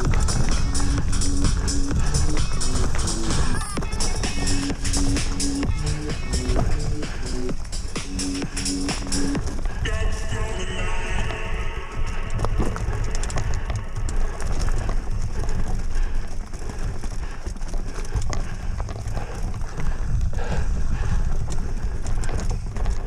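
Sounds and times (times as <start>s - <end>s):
wind on the microphone: 0.0s - 8.1s, 18.2s - 23.0s
bike tyres crunching over trail: 0.0s - 23.0s.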